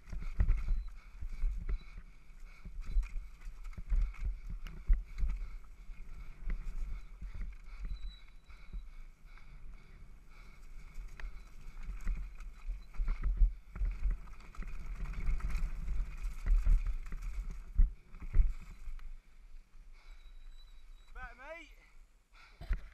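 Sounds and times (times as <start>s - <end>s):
bike tyres rumbling on dirt: 9.8s - 19.0s
bike rolling on gravel: 10.2s - 19.2s
bike knocking and rattling: 10.6s - 18.9s.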